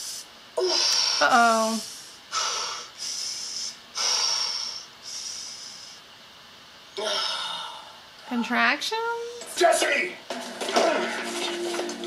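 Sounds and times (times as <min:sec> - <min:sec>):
woman breathing in quick hissing breaths: 0:00.0 - 0:06.1.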